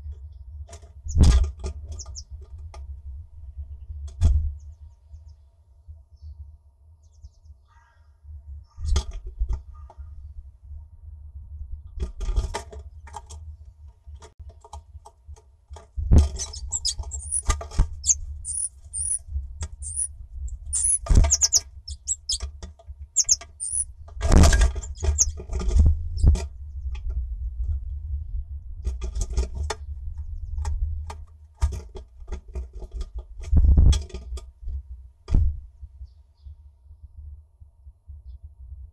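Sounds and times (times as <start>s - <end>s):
high thin bird calls: 2.0s - 2.2s, 16.3s - 19.2s, 19.8s - 22.4s, 23.2s - 23.9s, 24.8s - 25.4s
steady low rumble: 9.4s - 12.0s, 16.0s - 31.2s
bird tapping on wood: 20.7s - 22.5s.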